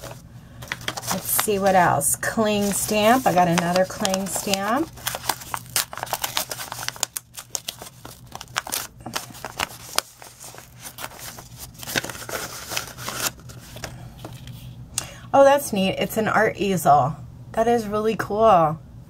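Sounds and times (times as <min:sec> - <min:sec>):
paper envelope crinkling: 0:00.0 - 0:14.8.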